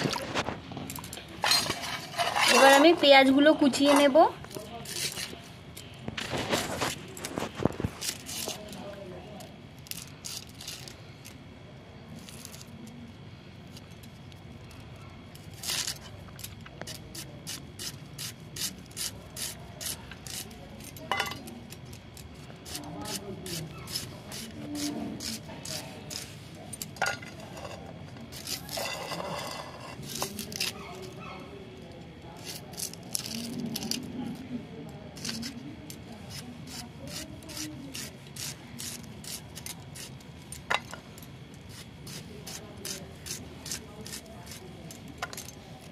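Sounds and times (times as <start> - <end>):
knife chopping onions: 16.8 - 21.4, 22.5 - 26.4, 35.1 - 40.7, 41.6 - 45.1.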